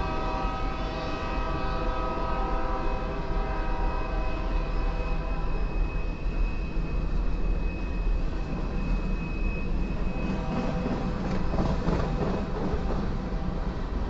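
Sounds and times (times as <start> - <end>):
freight train wheels rumbling: 0.0 - 14.0
thin high tone: 3.9 - 11.4.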